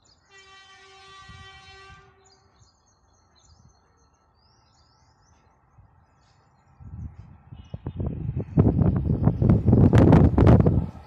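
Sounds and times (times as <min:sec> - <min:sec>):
birds chirping: 0:00.0 - 0:00.9, 0:01.7 - 0:08.4
faint locomotive horn blast: 0:00.3 - 0:02.5.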